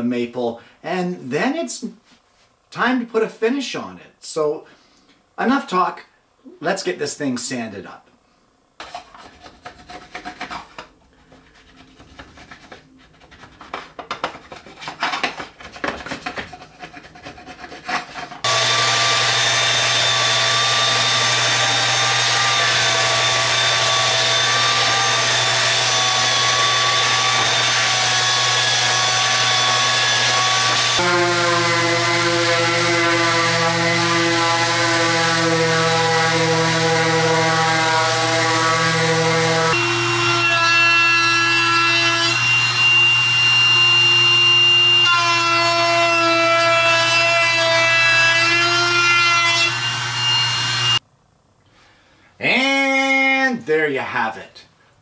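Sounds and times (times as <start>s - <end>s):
scraping on wood: 8.8s - 18.5s
electric belt sander running: 18.4s - 40.5s, 42.2s - 45.1s, 49.7s - 51.0s.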